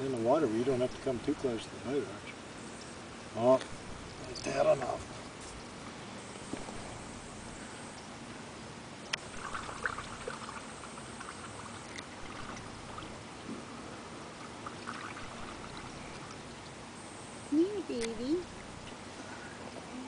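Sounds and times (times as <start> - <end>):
water lapping against boat: 9.2 - 16.8.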